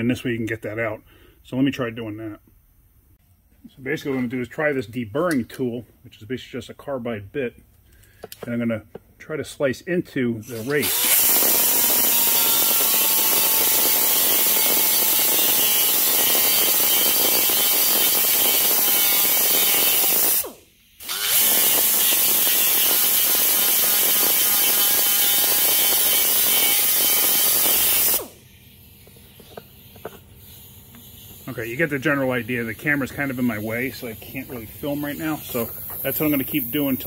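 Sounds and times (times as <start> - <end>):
power tool grinding steel: 10.4 - 28.4, 30.9 - 37.0.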